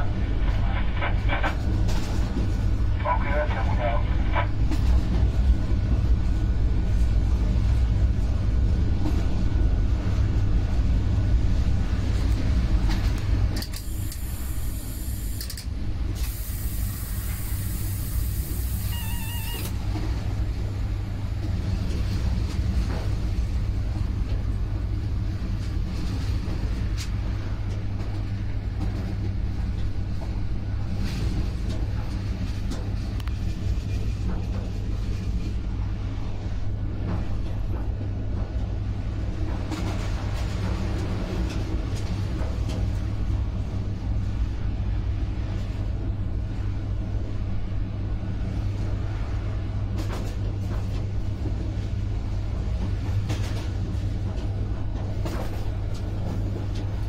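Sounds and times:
train wheels rumbling: 0:00.0 - 0:57.0
hiss: 0:13.8 - 0:15.6, 0:16.2 - 0:19.6
short beeps: 0:18.8 - 0:19.7.

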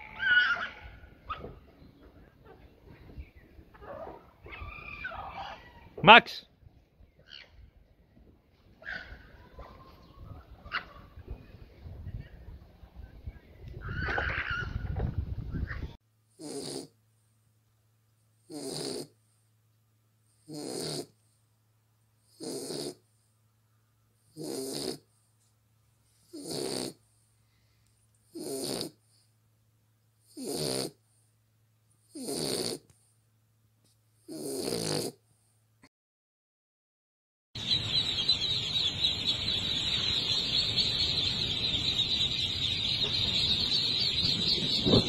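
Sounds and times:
dog snoring: 0:16.4 - 0:16.9, 0:18.5 - 0:19.2, 0:20.4 - 0:21.2, 0:22.3 - 0:23.0, 0:24.3 - 0:25.1, 0:26.2 - 0:27.0, 0:28.3 - 0:29.1, 0:30.2 - 0:31.0, 0:32.1 - 0:32.9, 0:34.3 - 0:35.2.

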